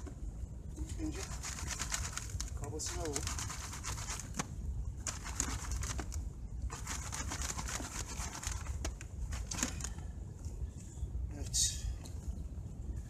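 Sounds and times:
gravel rattling in a sieve: 1.1s - 4.4s, 6.7s - 9.9s.

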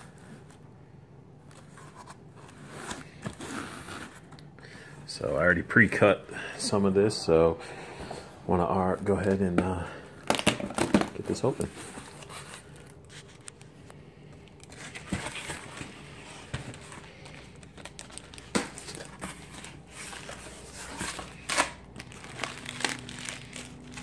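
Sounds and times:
cardboard rustling: 1.5s - 4.4s, 9.0s - 13.8s, 14.6s - 24.0s
plastic packing crinkling: 14.4s - 24.0s
cardboard ripping: 17.9s - 24.0s
packing tape peeling: 21.1s - 24.0s.

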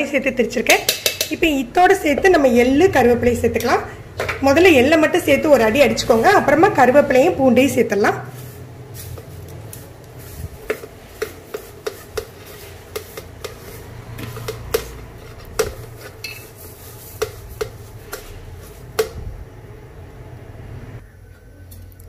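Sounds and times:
metal plate clinking on steel jar: 16.2s - 16.6s.

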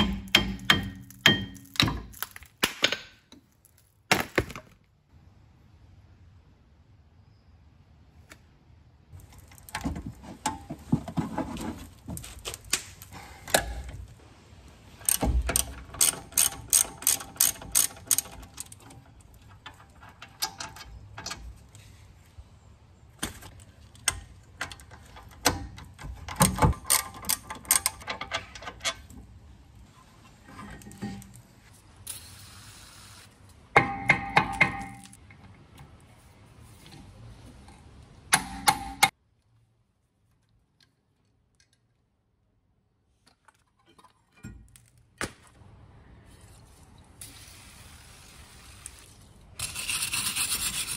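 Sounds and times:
hand ratchet clicking: 15.1s - 18.7s.

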